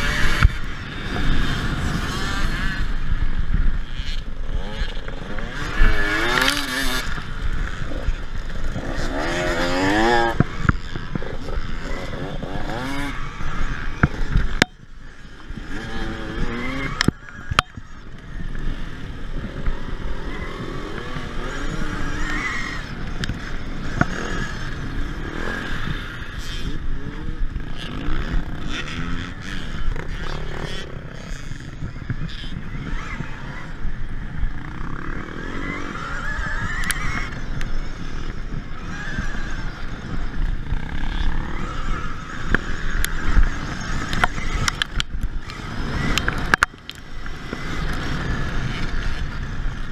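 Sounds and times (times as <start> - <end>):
dirtbike engines revving: 0.0 - 49.9
wind rumble on microphone: 0.0 - 49.9.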